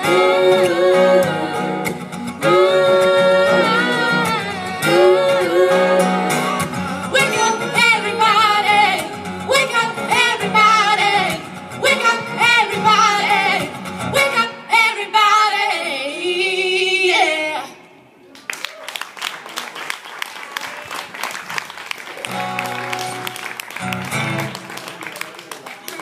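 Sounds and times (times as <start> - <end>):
acoustic guitar: 0.0 - 17.8, 22.2 - 25.3
women singing in harmony: 0.0 - 17.9.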